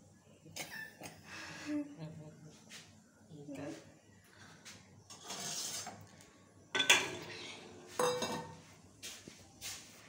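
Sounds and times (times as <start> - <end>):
metal pan and utensils clanking: 5.1 - 6.0, 6.7 - 8.6.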